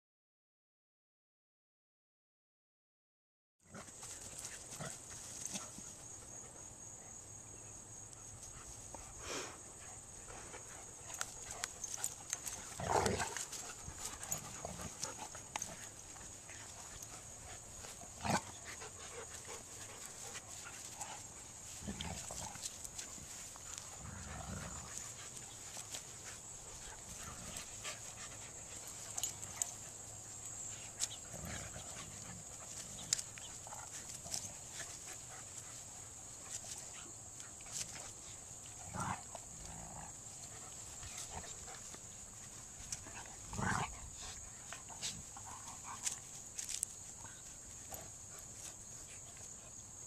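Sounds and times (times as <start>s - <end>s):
dogs growling and yipping: 9.9s - 49.6s.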